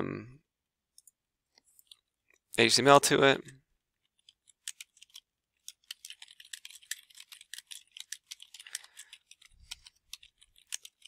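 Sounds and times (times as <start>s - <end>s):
keyboard typing: 4.1s - 11.0s.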